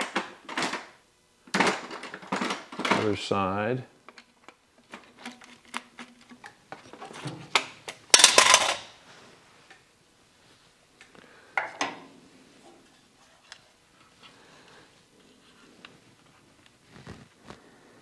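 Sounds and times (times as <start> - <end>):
metal clatter: 8.1 - 8.9.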